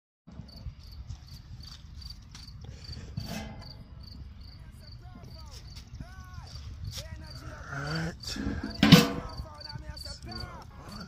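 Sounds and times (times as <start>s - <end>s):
crickets chirping: 0.4s - 11.0s
grill lid clatter: 3.2s - 3.9s, 8.6s - 9.4s.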